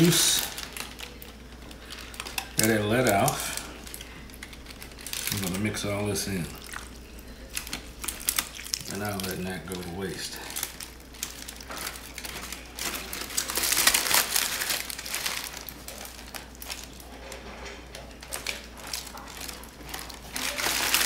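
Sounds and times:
aluminum foil crinkling: 0:00.0 - 0:21.0.

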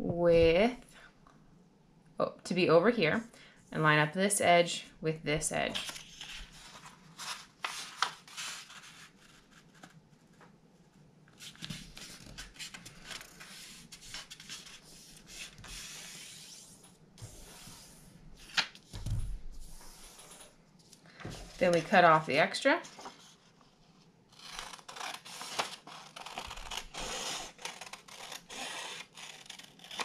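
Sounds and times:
hand rubbing paper fold: 0:05.7 - 0:10.5, 0:11.3 - 0:30.0
paper rustling and sliding: 0:05.7 - 0:10.5, 0:11.3 - 0:22.2, 0:22.8 - 0:24.1.

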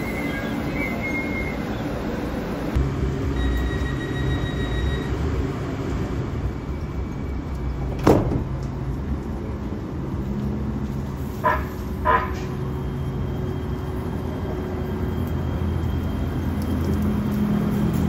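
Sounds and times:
train low hum: 0:00.0 - 0:18.0
high warning tone: 0:03.2 - 0:05.3
train doors shutting with a bang: 0:07.8 - 0:08.6.

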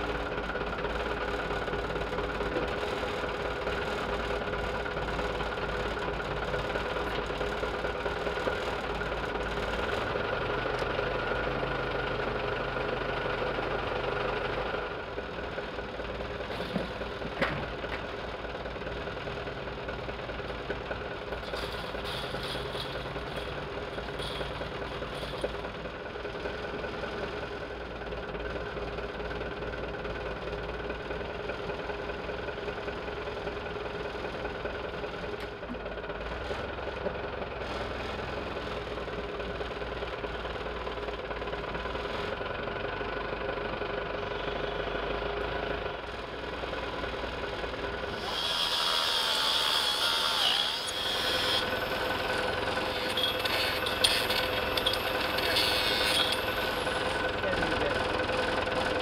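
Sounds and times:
machine humming: 0:48.2 - 0:59.0.

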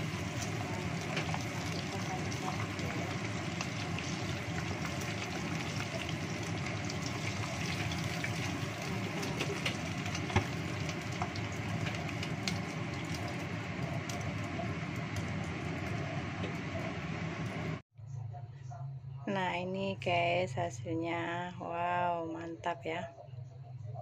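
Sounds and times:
chicken sizzling in hot oil: 0:00.0 - 0:17.8.

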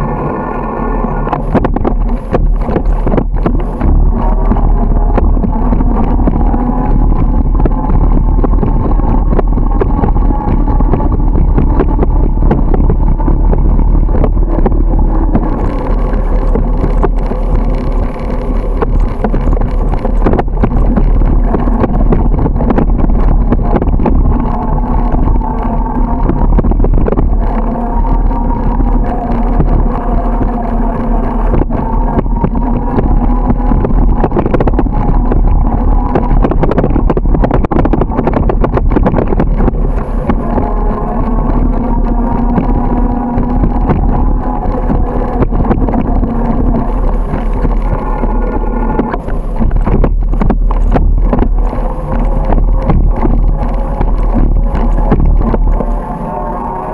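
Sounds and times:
wind rushing over microphone: 0:00.0 - 0:56.9
bicycle knocks and rattles: 0:01.3 - 0:27.5.

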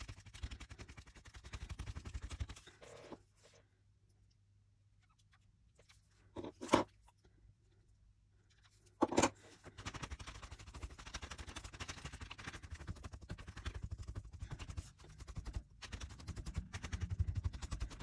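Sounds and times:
sticky tape rubbed on paper: 0:09.7 - 0:18.0.

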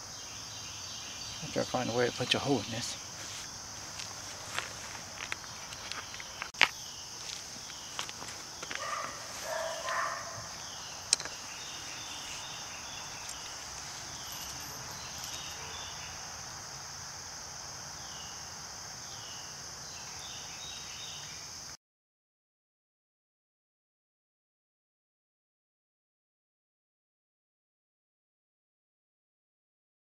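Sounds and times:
high-pitched insect chorus: 0:00.0 - 0:21.8.

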